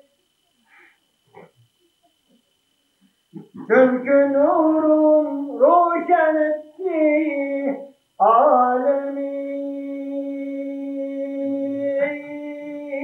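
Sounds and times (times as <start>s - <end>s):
person singing unaccompanied: 3.4s - 13.0s.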